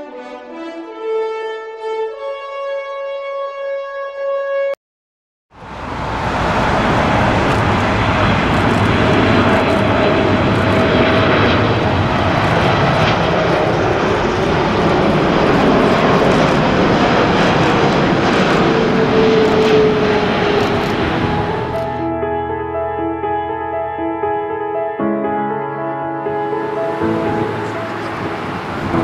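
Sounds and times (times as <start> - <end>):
jet airliner engines roaring: 5.6 - 22.1, 26.2 - 29.0.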